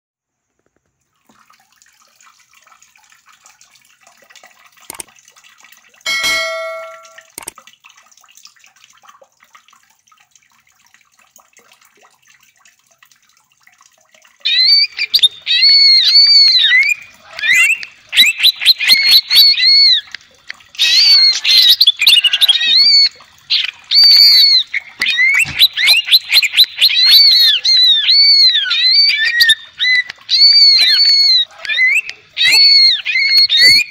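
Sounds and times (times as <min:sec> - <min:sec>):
single ringing ding: 0:06.1 - 0:07.3
bird singing whistled notes: 0:29.0 - 0:33.9.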